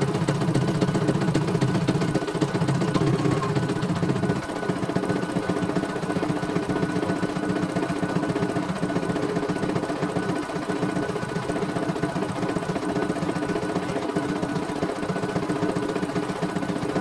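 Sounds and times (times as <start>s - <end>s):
embroidery machine needle chatter: 2.1s - 4.4s.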